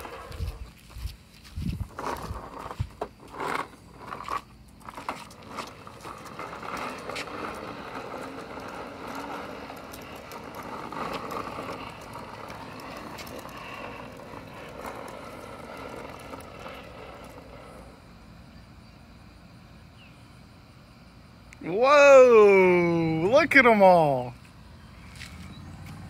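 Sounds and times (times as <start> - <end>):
plastic toy wheels rattling on concrete: 0.0 - 1.1, 1.7 - 18.0.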